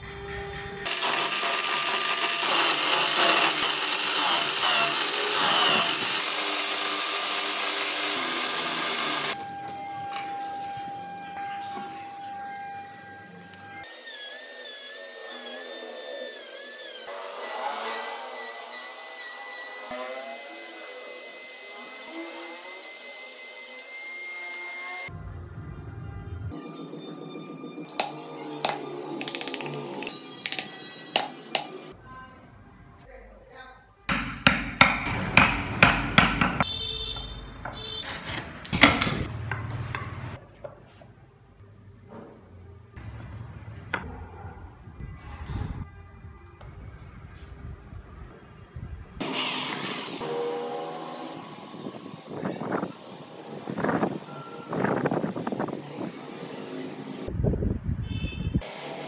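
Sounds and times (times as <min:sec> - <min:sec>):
rotary tool whine: 0:00.3 - 0:09.6.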